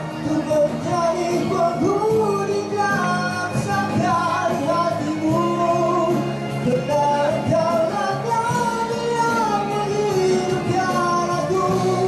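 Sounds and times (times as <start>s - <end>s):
accompanying music: 0.0s - 12.0s
man singing into microphone: 0.0s - 12.0s.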